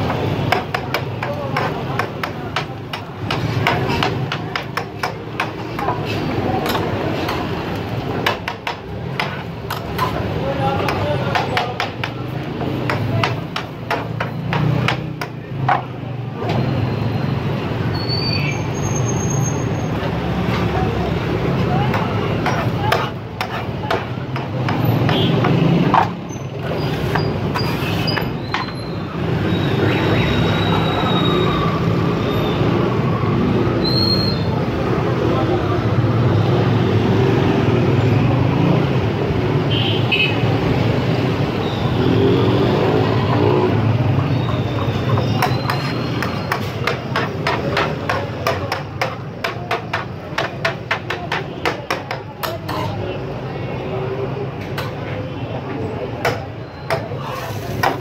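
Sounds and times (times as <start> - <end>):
street noise: 0.0 - 58.0
metal spatula scraping griddle: 22.0 - 25.2, 26.0 - 29.0, 45.0 - 48.4, 52.4 - 53.0, 56.8 - 58.0.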